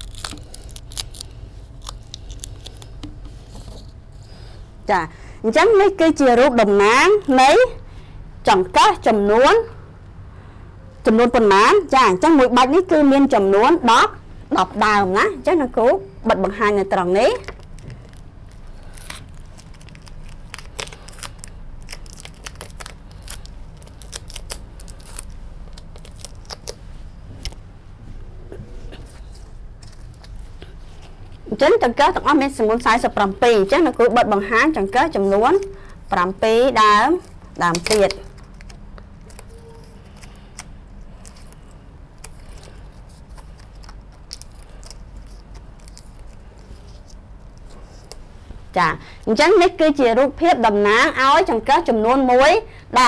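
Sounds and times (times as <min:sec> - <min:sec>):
steady low hum: 0:00.0 - 0:53.0
paper and card rustling: 0:28.9 - 0:31.5, 0:37.0 - 0:48.2.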